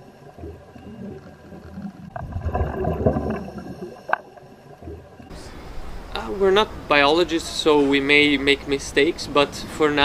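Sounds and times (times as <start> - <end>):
underwater bubbling and gurgling: 0.0 - 5.3.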